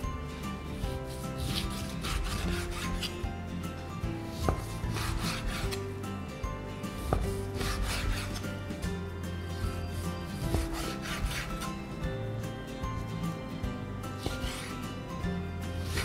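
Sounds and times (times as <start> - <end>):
background music with held notes: 0.0 - 16.0
knife slicing meat on board: 0.8 - 3.3, 4.3 - 5.8, 6.9 - 8.9, 9.6 - 11.8, 14.2 - 14.8, 15.8 - 16.0.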